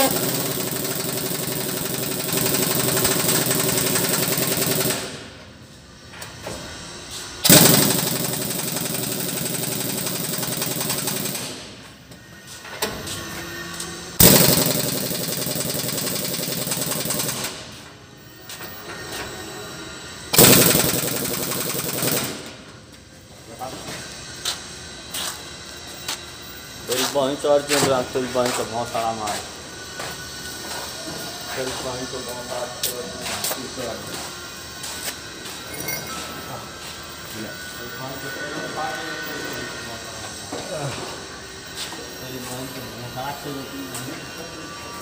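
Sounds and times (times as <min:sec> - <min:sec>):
impact wrench hammering: 0:00.0 - 0:05.3, 0:07.4 - 0:11.9, 0:14.2 - 0:17.8, 0:20.4 - 0:22.5.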